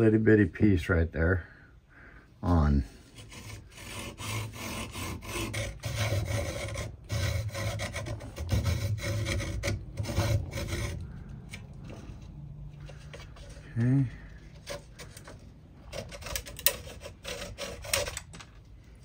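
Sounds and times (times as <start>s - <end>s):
hacksaw cutting wood: 3.2s - 11.6s, 14.3s - 18.3s.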